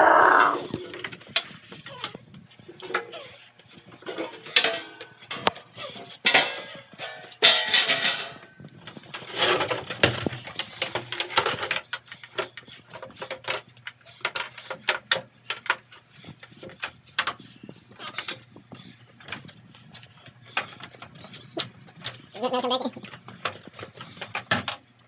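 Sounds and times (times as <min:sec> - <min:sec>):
clattering and knocking: 0:06.3 - 0:15.8.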